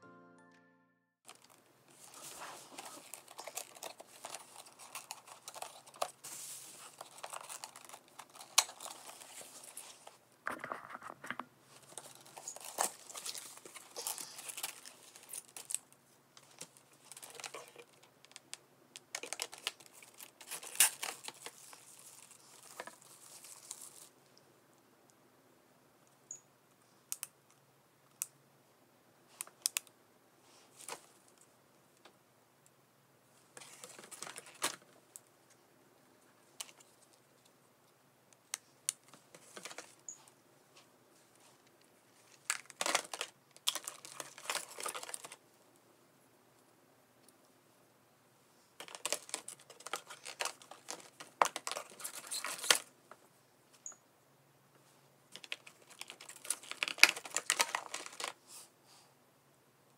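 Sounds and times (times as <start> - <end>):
plastic packaging clicking and rustling: 1.2 - 24.1, 33.6 - 35.0, 38.9 - 40.0, 42.3 - 45.4, 48.8 - 52.9, 55.3 - 58.4.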